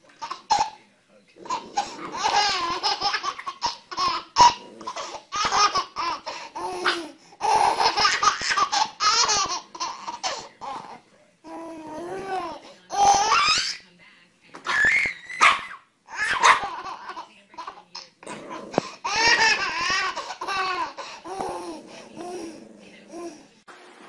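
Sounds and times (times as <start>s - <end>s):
baby laughing: 0.2s - 0.8s, 1.4s - 11.0s, 16.1s - 18.1s, 18.8s - 21.8s.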